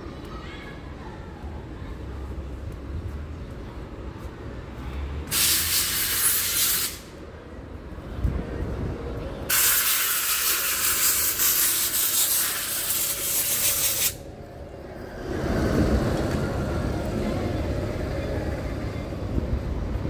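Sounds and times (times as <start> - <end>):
street traffic rumble: 0.0 - 20.0
loud air spray hiss: 5.3 - 7.2, 9.5 - 14.2.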